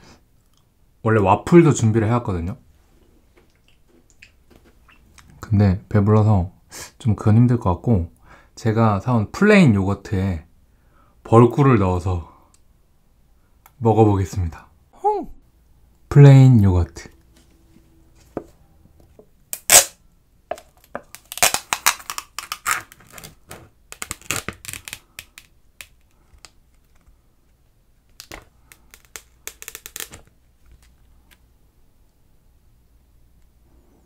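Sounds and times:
foil sharp crack: 0:21.1 - 0:26.1.

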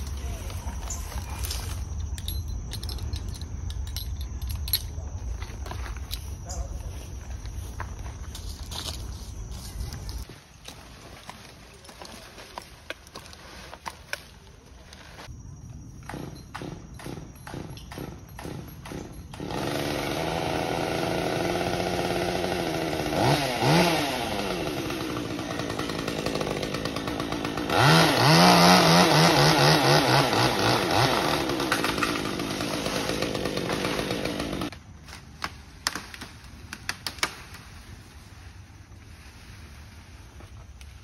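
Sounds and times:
chainsaw running and revving: 0:19.3 - 0:34.8.

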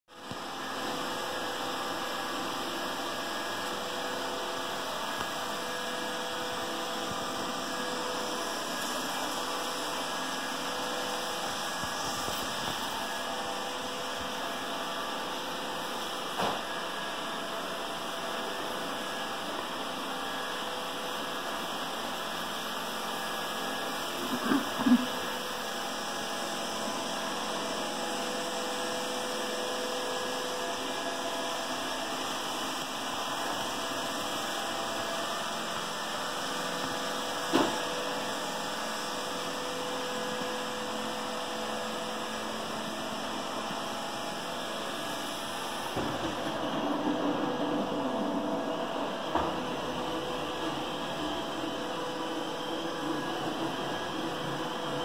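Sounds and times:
robot vacuum whirring: 0:42.3 - 0:55.0.

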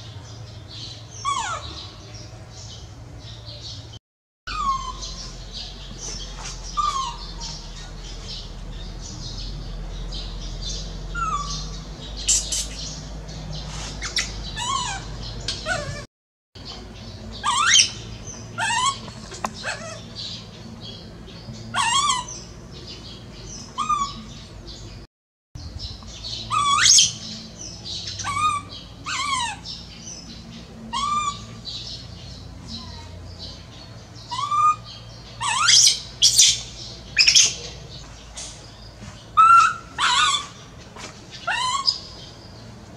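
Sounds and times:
baby monkey squealing: 0:06.7 - 0:07.9, 0:11.2 - 0:11.6, 0:14.0 - 0:16.0, 0:17.4 - 0:18.0, 0:18.6 - 0:20.0, 0:21.8 - 0:22.4, 0:23.8 - 0:24.2, 0:26.5 - 0:27.2, 0:28.2 - 0:29.7, 0:30.9 - 0:31.5, 0:34.3 - 0:36.6, 0:39.4 - 0:40.7, 0:41.4 - 0:42.1.

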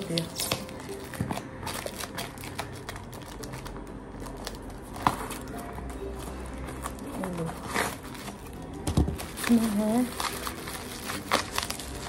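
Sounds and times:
paper parcel crinkling and tearing: 0:00.0 - 0:12.0
soft background music: 0:00.0 - 0:12.0.

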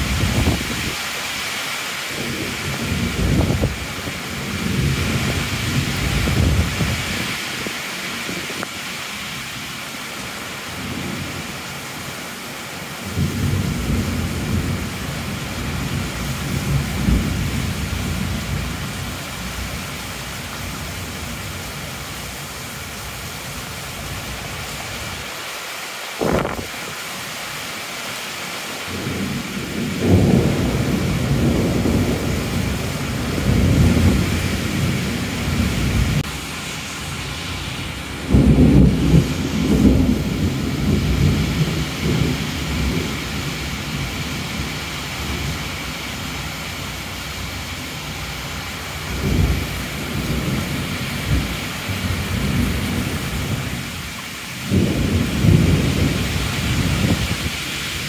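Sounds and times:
thunder rumbling: 0:00.0 - 0:01.0, 0:02.2 - 0:07.4, 0:26.2 - 0:26.8, 0:28.9 - 0:45.6, 0:54.6 - 0:57.6
heavy rain falling: 0:00.0 - 0:58.0
sharp thunder crack: 0:26.2 - 0:26.7, 0:38.2 - 0:43.0.

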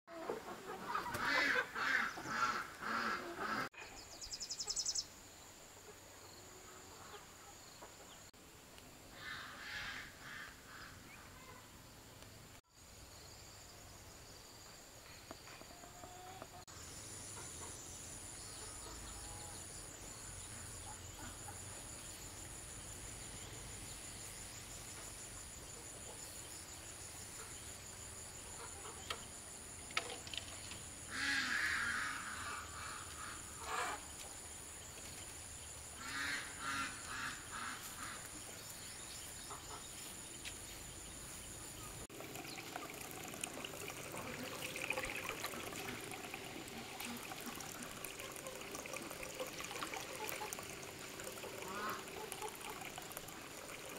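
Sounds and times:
chickens clucking: 0:00.1 - 0:04.0.

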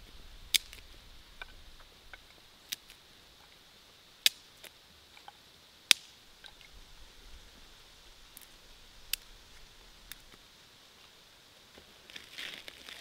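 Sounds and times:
sticks cracking: 0:00.5 - 0:01.6, 0:02.2 - 0:03.0, 0:04.2 - 0:04.7, 0:05.9 - 0:06.1.

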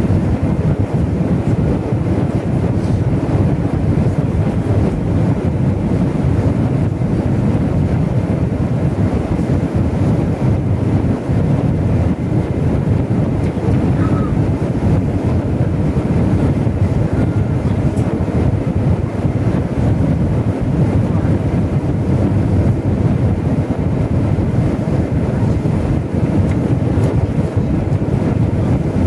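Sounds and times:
airliner cabin engine roar: 0:00.0 - 0:29.0.

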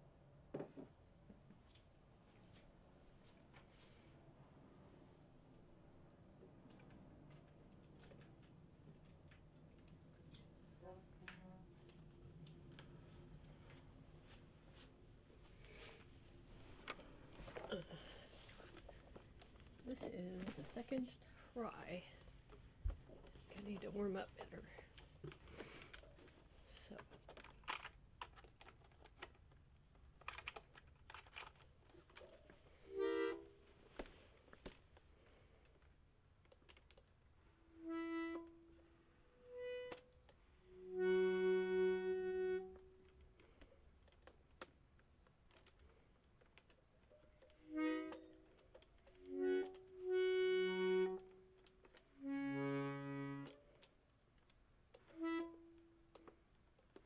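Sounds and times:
accordion notes and chords: 0:32.8 - 0:33.7, 0:37.6 - 0:43.2, 0:47.6 - 0:53.8, 0:55.1 - 0:56.2.

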